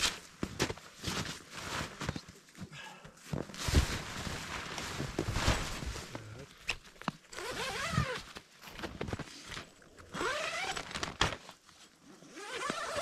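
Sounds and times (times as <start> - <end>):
tent zipper pulled: 7.3 - 8.4, 9.0 - 11.4, 12.0 - 13.0.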